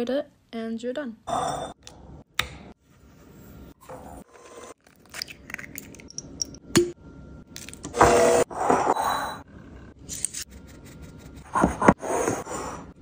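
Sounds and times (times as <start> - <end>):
egg cracking: 4.8 - 6.6.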